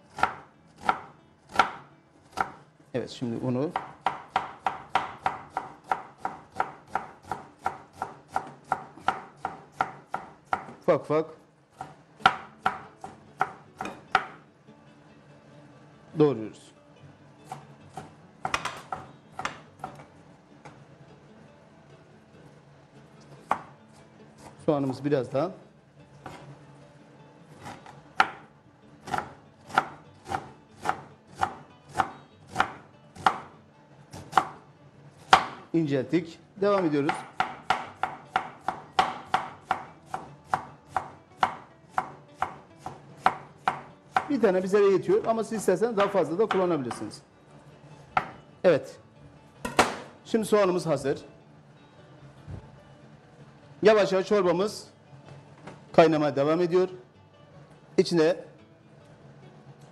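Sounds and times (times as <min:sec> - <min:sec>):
knife chopping on wooden board: 0:00.1 - 0:02.6, 0:03.7 - 0:10.8, 0:11.8 - 0:14.4, 0:17.5 - 0:20.1, 0:23.4 - 0:23.7, 0:27.6 - 0:28.4, 0:29.0 - 0:33.5, 0:34.1 - 0:34.6, 0:35.2 - 0:35.6, 0:36.8 - 0:44.3, 0:46.0 - 0:47.1, 0:48.2 - 0:48.4.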